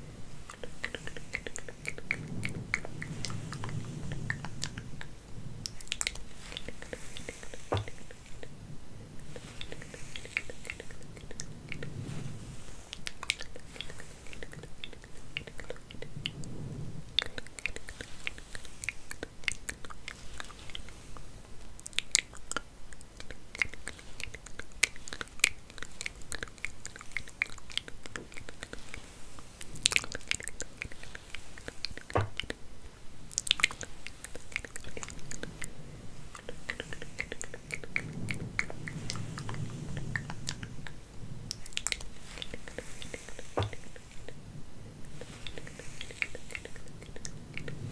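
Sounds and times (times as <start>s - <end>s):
hair being combed: 5.8s - 15.8s, 41.6s - 44.4s, 45.1s - 47.8s.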